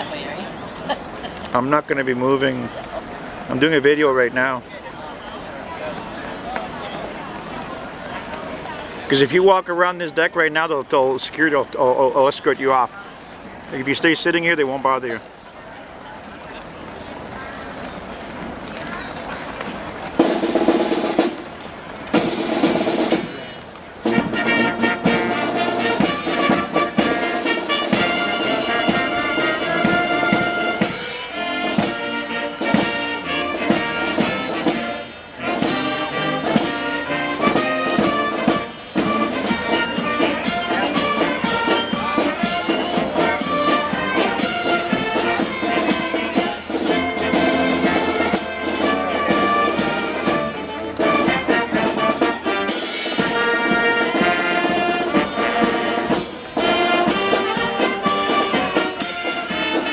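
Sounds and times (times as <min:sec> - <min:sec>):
snare and bass drums: 0:19.6 - 0:59.9
concert band playing: 0:19.9 - 0:59.9.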